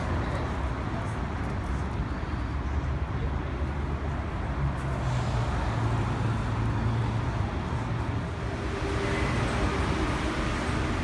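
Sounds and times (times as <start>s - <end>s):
street traffic rumble: 0.0s - 11.0s.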